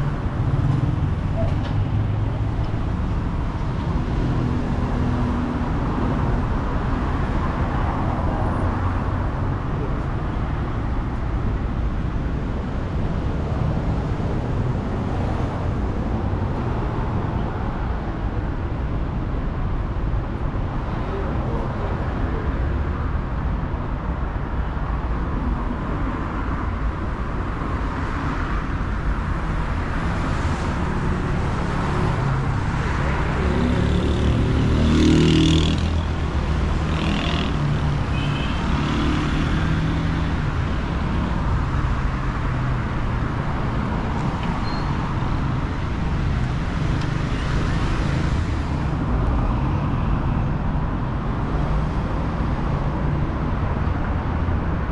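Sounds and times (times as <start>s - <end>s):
cars driving past: 25.6s - 54.9s.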